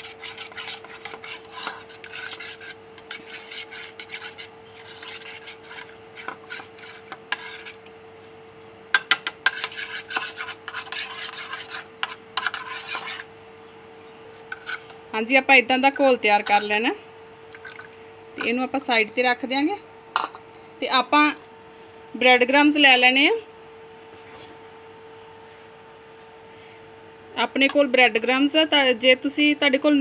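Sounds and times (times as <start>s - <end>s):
spoon stirring batter in bowl: 0.0s - 8.0s, 9.0s - 13.3s, 14.3s - 15.0s.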